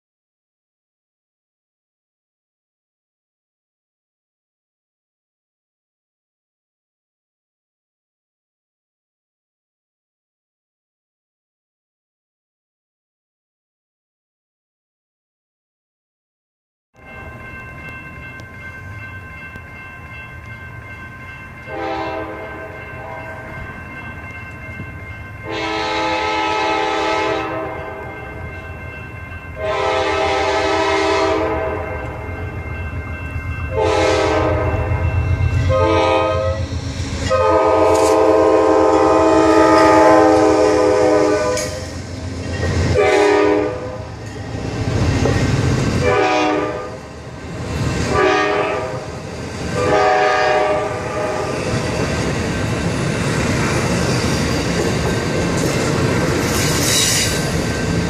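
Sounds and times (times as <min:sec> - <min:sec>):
train wheels rumbling on rails: 0:17.0 - 0:58.0
train horn blasts: 0:21.7 - 0:23.6, 0:25.4 - 0:28.2, 0:29.6 - 0:32.4, 0:33.7 - 0:42.0, 0:42.9 - 0:44.3, 0:46.0 - 0:47.1, 0:48.1 - 0:49.1, 0:49.8 - 0:51.6.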